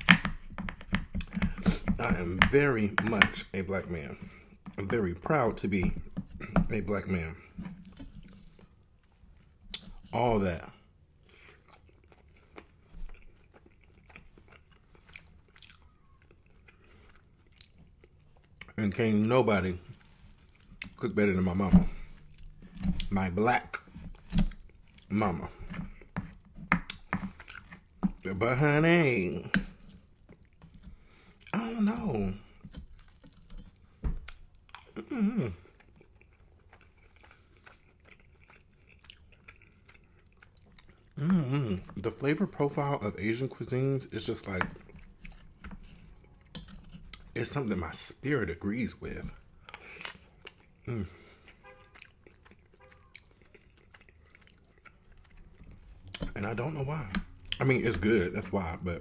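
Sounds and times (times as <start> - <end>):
chewing with wet mouth clicks: 7.6 - 18.8, 19.8 - 21.4, 22.1 - 23.1, 23.7 - 28.3, 29.4 - 31.6, 35.6 - 42.9, 43.6 - 47.4, 49.3 - 58.0.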